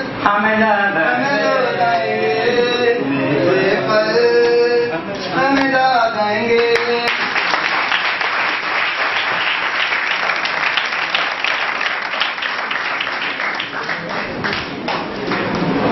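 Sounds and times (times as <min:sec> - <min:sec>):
audience applauding: 0:06.6 - 0:15.9.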